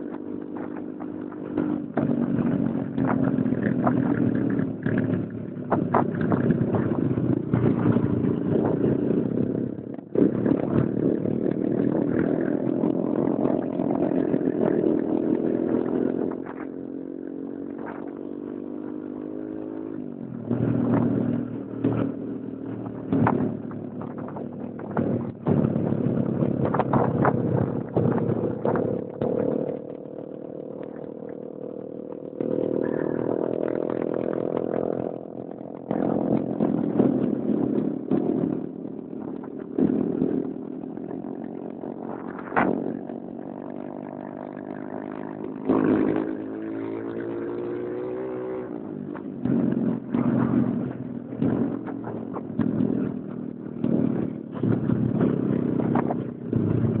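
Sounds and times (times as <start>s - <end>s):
small motorcycle engine running: 0.0s - 57.0s
knocks and rattles: 22.8s - 29.9s.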